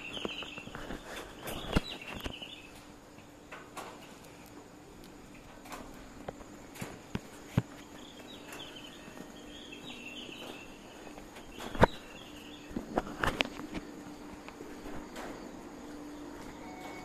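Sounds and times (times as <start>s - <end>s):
faint high chirping: 0.0s - 2.9s, 7.9s - 12.8s, 15.1s - 17.0s
steady low hum: 0.0s - 17.0s.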